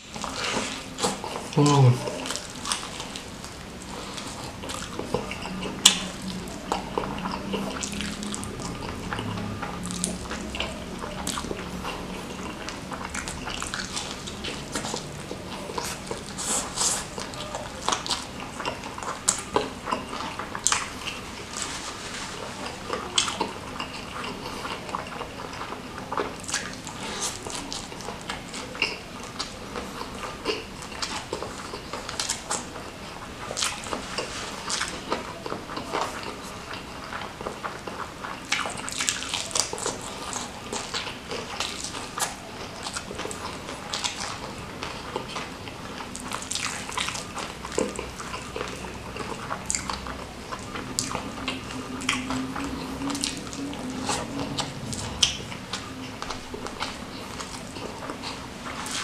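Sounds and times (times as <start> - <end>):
wet chewing: 0.0 - 59.0
lip smacks: 38.3 - 59.0.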